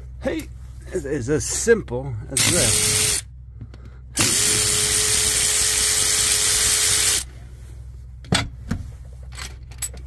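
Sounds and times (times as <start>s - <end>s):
power ratchet whirring: 2.4s - 3.3s, 4.2s - 7.3s.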